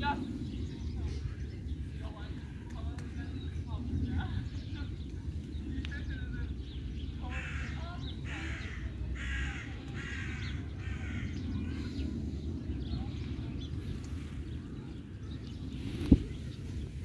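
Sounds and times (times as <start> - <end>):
bird harsh calls: 6.8 - 12.2.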